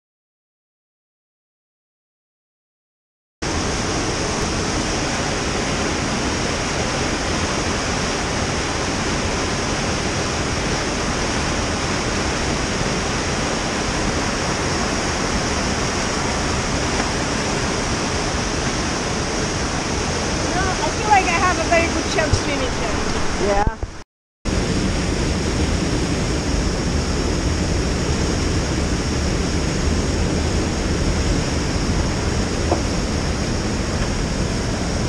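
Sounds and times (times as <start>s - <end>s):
rushing whitewater rapids: 3.5s - 24.0s.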